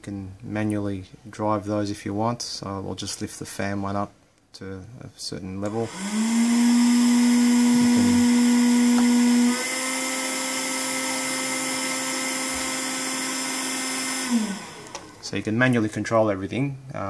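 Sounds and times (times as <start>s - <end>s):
fan motor humming and whining: 5.6s - 15.2s.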